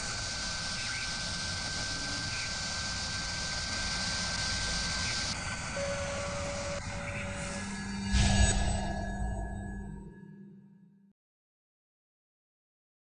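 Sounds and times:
spinning spindle whir: 0.0 - 9.0
lower steady tone: 0.0 - 11.1
high tone: 5.7 - 10.8.

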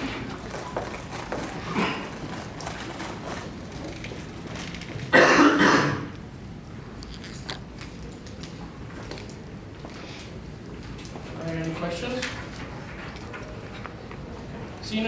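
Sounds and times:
person coughing: 5.1 - 6.1.

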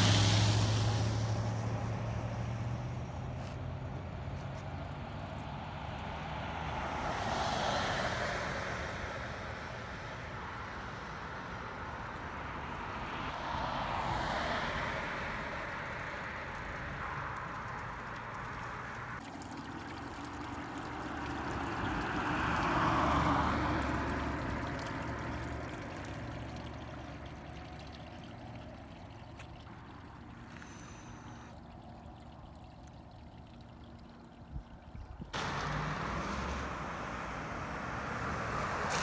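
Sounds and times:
vehicle passing: 0.0 - 34.4, 35.4 - 39.0
water trickling in gutter: 16.5 - 39.0.

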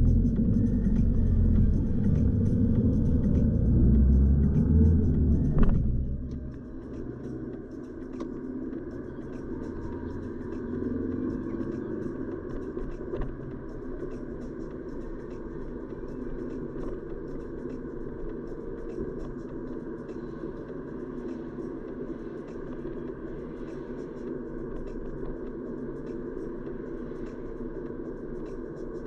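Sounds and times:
car road rumble: 0.0 - 19.8.

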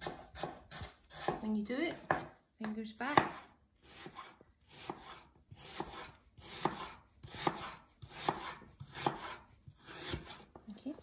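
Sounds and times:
knife slicing apple on board: 0.0 - 10.6.

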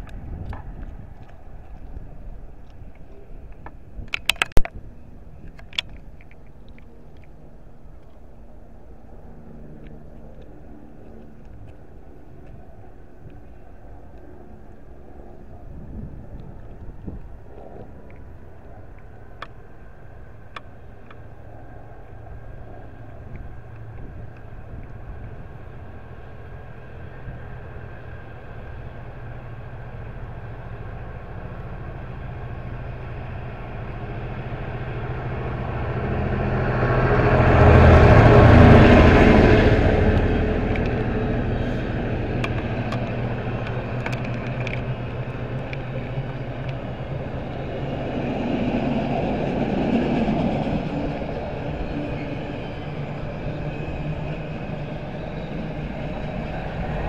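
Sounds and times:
diesel locomotive engine drone: 0.0 - 57.0
train wheel clicks: 3.5 - 4.8, 33.7 - 53.0.

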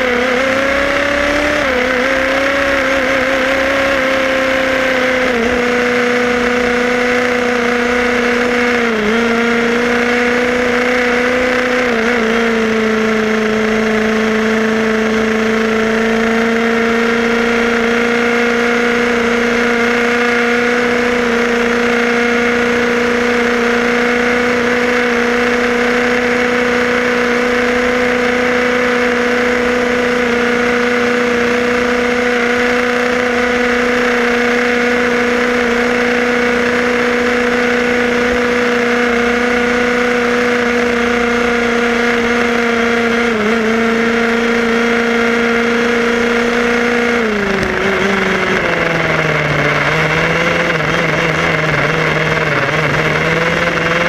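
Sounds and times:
road noise: 0.0 - 54.0
rc car motor whine: 45.3 - 54.0.

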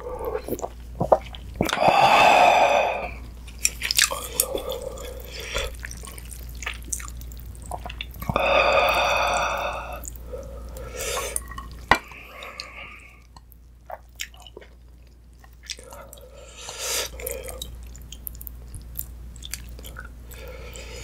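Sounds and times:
broth dripping and splashing: 3.6 - 10.3.

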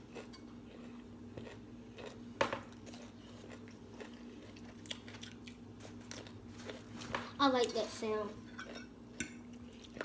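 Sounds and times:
soft chewing: 0.0 - 7.7, 8.4 - 10.0
steady low hum: 0.0 - 10.0.

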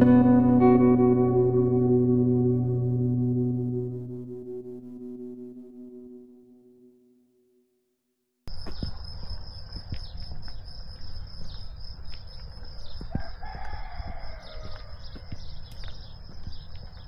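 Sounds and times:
rooster crowing: 13.1 - 15.4.

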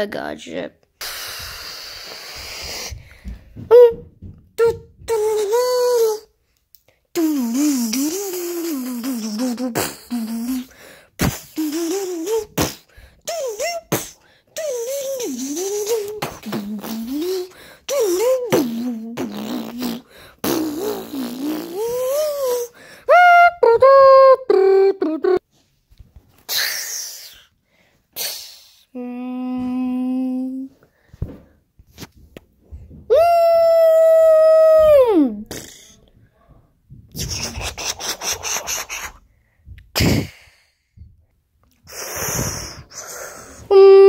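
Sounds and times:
child making mouth sound effects: 1.0 - 3.0, 3.6 - 6.3, 7.1 - 25.5, 26.5 - 27.5, 28.2 - 30.7, 33.1 - 36.1, 37.1 - 39.2, 39.9 - 40.7, 41.7 - 44.0.

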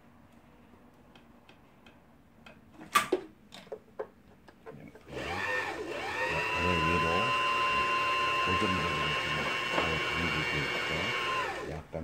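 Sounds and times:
sewing machine motor running: 5.1 - 11.8.

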